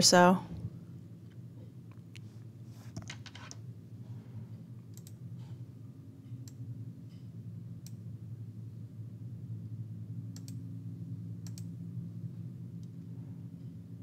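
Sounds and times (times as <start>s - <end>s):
low electrical hum: 0.0s - 14.0s
faint small clicks: 4.9s - 5.2s, 11.4s - 11.7s.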